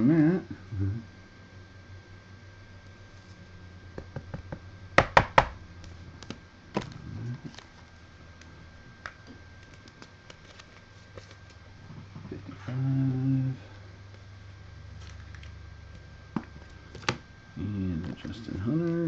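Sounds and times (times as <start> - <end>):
sharp loud taps: 5.0 - 5.6.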